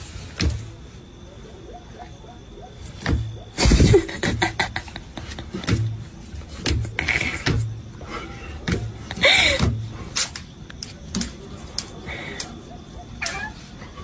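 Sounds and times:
animals scuffling on tiled floor: 2.8 - 14.0.

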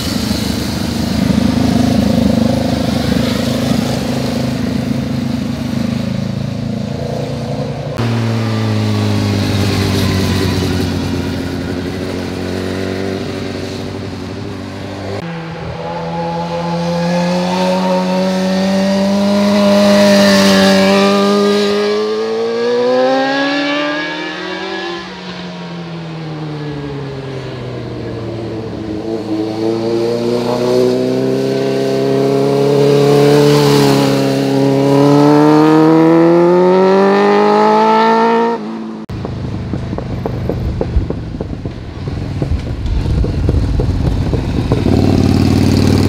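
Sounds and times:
motorcycle engine accelerating: 0.0 - 46.0.

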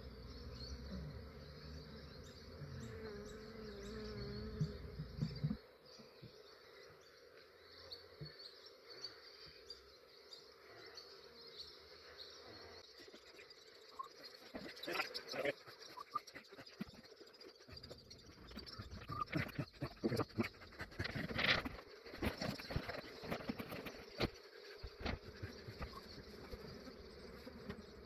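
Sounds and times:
bee swarm buzzing: 0.0 - 8.0, 11.0 - 28.0
single bee buzzing close by: 0.3 - 6.4.

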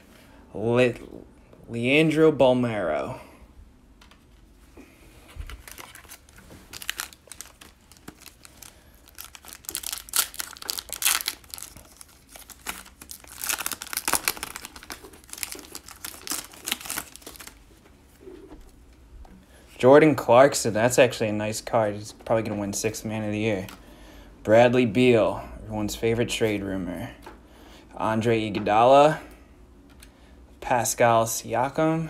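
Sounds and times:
foil wrapper crinkling and tearing: 5.5 - 17.6.

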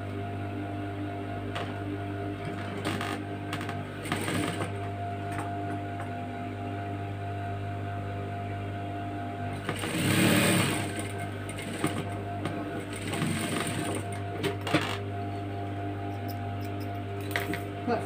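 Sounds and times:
sewing machine stitching: 2.4 - 4.8, 9.6 - 15.0.

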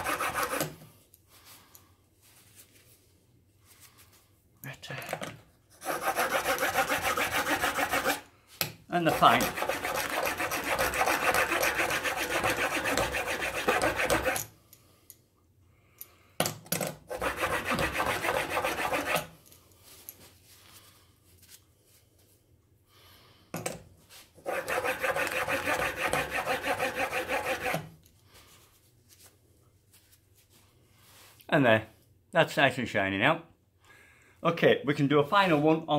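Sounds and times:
steel scraping on sharpening plate: 9.3 - 14.5.

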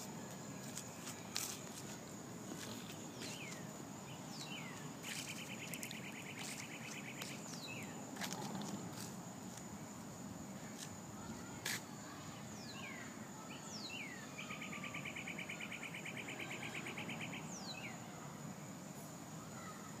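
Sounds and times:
insect drone: 0.0 - 20.0
rapid pulsed bird trill: 3.1 - 8.0, 12.6 - 18.0.

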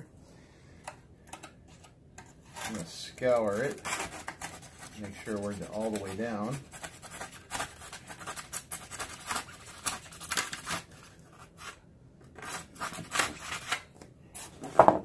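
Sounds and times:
knife scratching through foam board: 1.7 - 11.8, 12.4 - 14.6.

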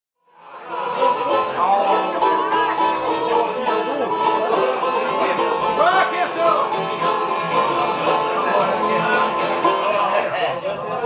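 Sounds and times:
plucked long-necked lute: 0.3 - 11.0.

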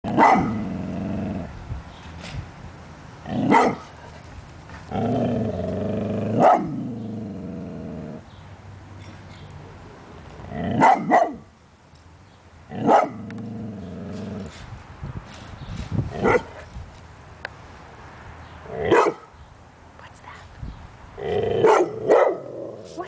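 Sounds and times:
dog barking: 0.2 - 0.6, 3.5 - 3.9, 6.4 - 6.8, 10.8 - 11.4, 12.8 - 13.2, 16.2 - 16.6, 18.9 - 19.3, 21.6 - 22.5
dog growling: 4.9 - 8.2.

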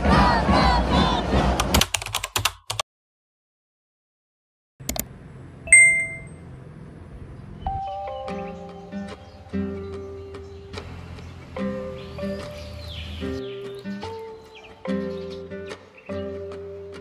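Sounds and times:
crowd cheering: 0.0 - 1.6
click: 4.9 - 5.1
bright ding: 5.7 - 6.3.

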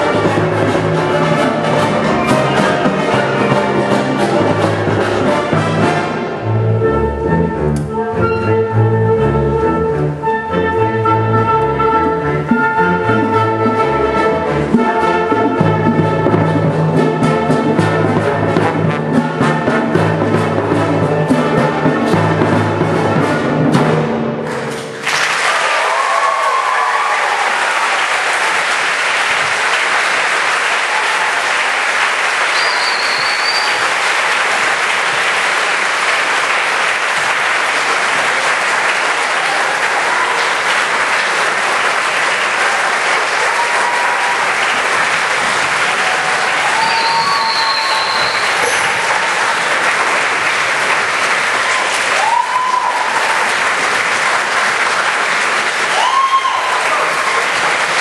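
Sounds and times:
audience applauding: 24.5 - 58.0
high calls or whistles: 32.5 - 33.9, 46.7 - 49.0.

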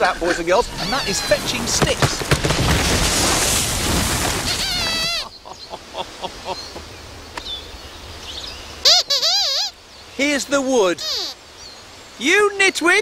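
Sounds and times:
birds chirping: 0.0 - 13.0
warbling squeaker voice: 0.6 - 1.7, 4.4 - 5.3, 8.9 - 9.7, 10.9 - 11.4
tent crashing and clattering: 0.8 - 5.1.

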